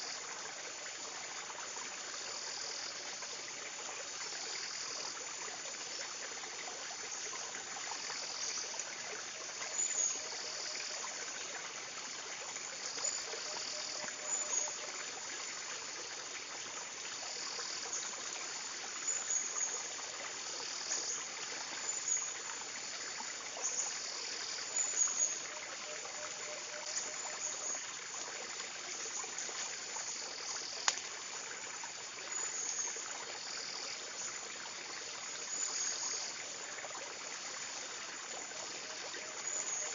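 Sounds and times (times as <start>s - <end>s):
insects calling: 0.0s - 39.9s
running water: 0.0s - 39.9s.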